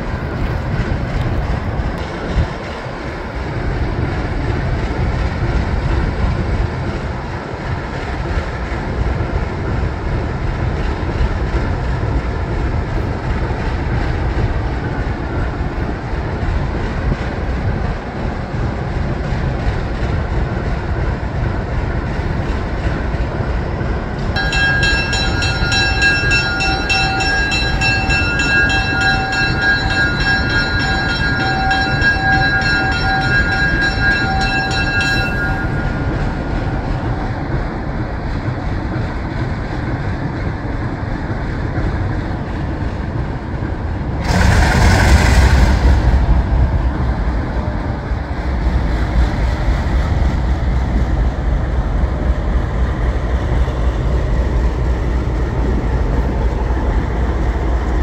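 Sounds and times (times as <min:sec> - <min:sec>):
diesel locomotive engines idling: 0:22.3 - 0:58.0
high whine of held tones: 0:24.4 - 0:37.7.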